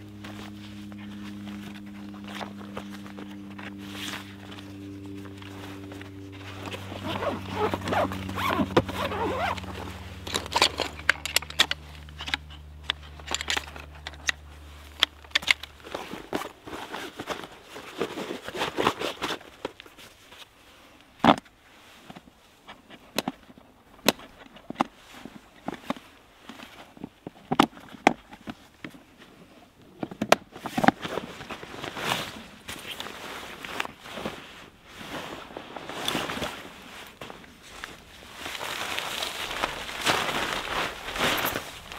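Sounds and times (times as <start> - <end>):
footsteps on moss and grass: 0.0 - 11.0, 31.6 - 41.9
low steady hum: 0.0 - 18.5
fabric rustling: 0.1 - 10.2, 31.0 - 41.9.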